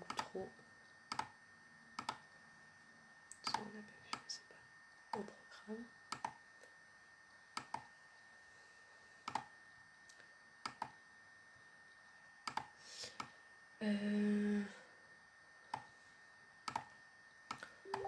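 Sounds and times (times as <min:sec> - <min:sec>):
computer mouse clicks: 0:01.1 - 0:01.3, 0:02.0 - 0:02.2, 0:06.1 - 0:06.4, 0:07.6 - 0:07.9, 0:09.2 - 0:09.5, 0:10.6 - 0:11.0, 0:12.4 - 0:13.3, 0:16.6 - 0:16.9
person humming: 0:13.8 - 0:14.9.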